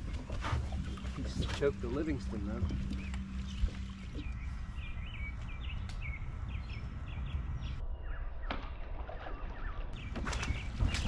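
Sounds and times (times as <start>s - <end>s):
low steady rumble: 0.0s - 8.1s
birds chirping: 0.0s - 11.0s.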